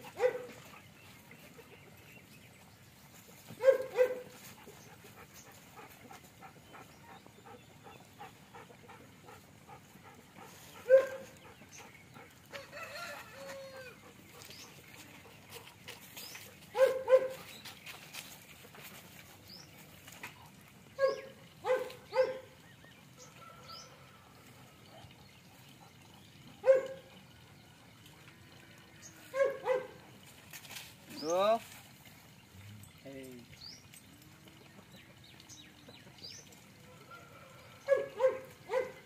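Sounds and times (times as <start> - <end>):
dog yelping: 10.8 - 11.3, 16.8 - 17.4, 21.0 - 22.5, 26.6 - 27.0, 29.3 - 29.9.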